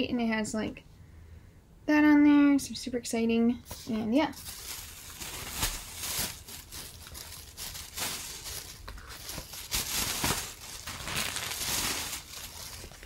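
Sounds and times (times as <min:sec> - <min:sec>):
plastic bag rustling: 0:03.7 - 0:13.0.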